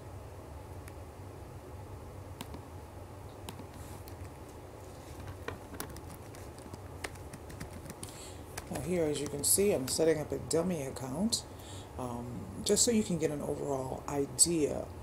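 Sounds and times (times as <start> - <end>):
steady low hum: 0.0 - 15.0
computer mouse clicks: 2.4 - 2.6, 5.6 - 9.4
keyboard key taps: 5.3 - 9.4.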